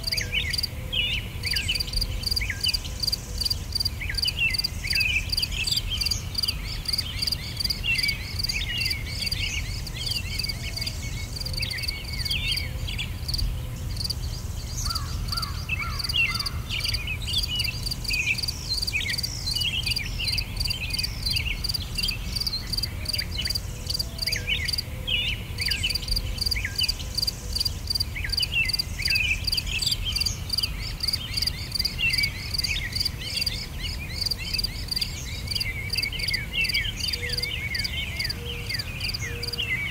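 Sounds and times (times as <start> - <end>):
crickets trilling: 0.0 - 0.7, 1.4 - 24.9, 25.6 - 39.6
birds chirping: 0.0 - 39.9.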